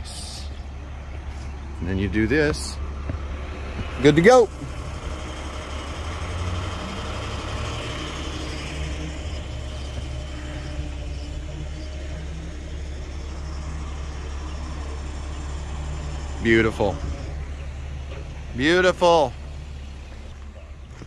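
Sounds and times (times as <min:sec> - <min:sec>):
truck engine humming: 0:00.0 - 0:21.0.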